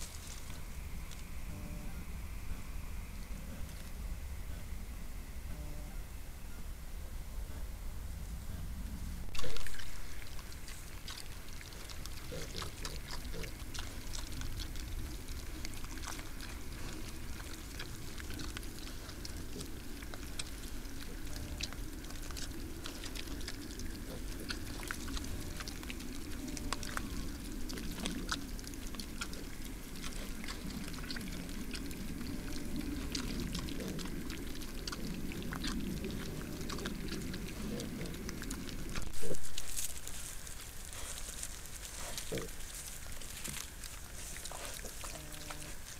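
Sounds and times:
crackles and clicks of rooting: 0.0s - 1.3s, 9.3s - 45.9s
water sounds: 9.3s - 39.9s
piglets grunting: 9.4s - 39.9s, 41.9s - 42.7s, 44.1s - 45.9s.

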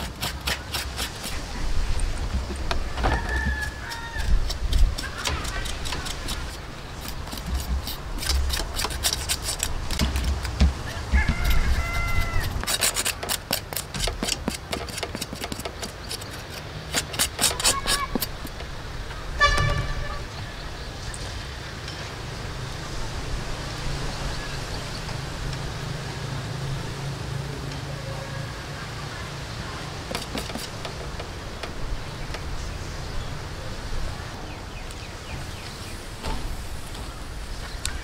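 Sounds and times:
knife scraping and tapping: 2.3s - 18.7s, 30.1s - 31.8s
short horn toot: 19.4s - 20.3s.

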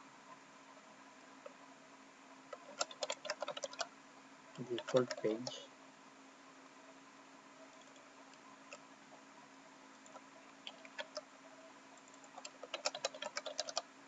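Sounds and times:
faint steady hum: 0.0s - 14.0s
keyboard key clicks: 12.2s - 13.8s.

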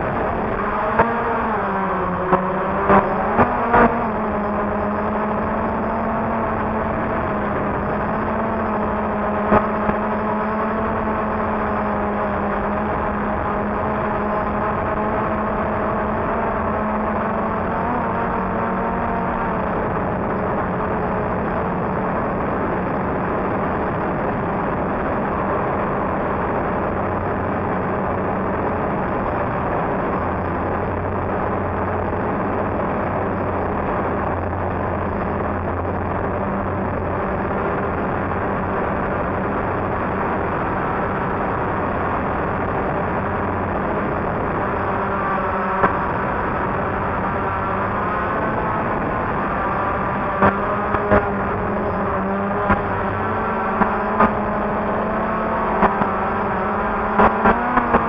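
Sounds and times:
drone propellers whirring: 0.0s - 58.0s.

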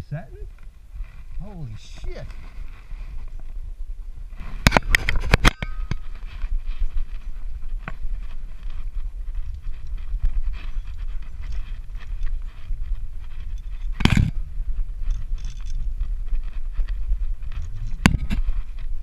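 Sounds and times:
rope and carabiners clinking: 4.4s - 19.0s
sharp metal clanks: 4.6s - 6.2s
steady low rumble: 5.6s - 19.0s.

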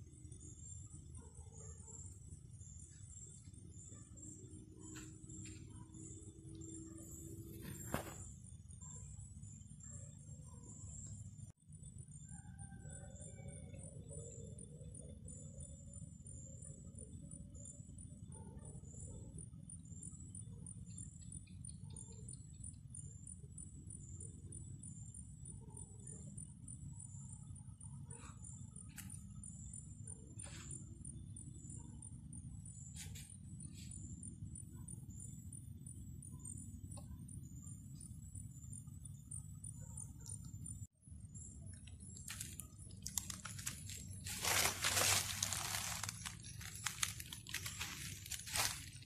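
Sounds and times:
insect high-pitched chirps: 0.0s - 49.0s
dry leaves and twigs rustling: 42.2s - 49.0s.

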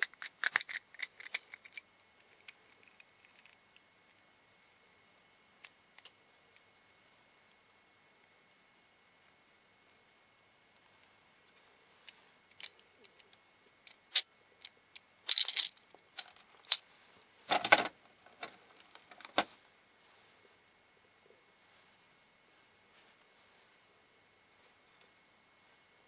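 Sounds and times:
plastic parts rattling: 0.0s - 3.6s, 15.3s - 16.8s, 17.5s - 19.5s
plastic toy parts clicking: 0.0s - 3.6s, 15.3s - 16.8s.

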